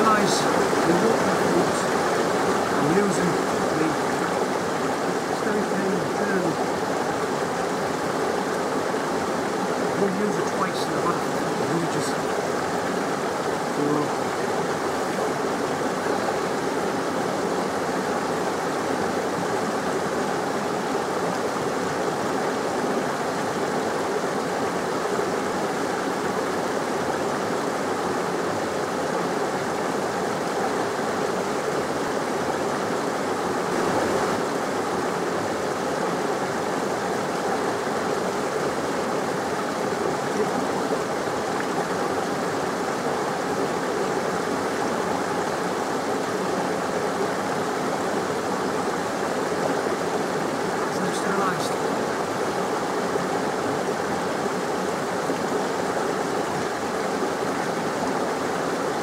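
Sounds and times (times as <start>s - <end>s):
stream water rushing: 0.0s - 59.0s.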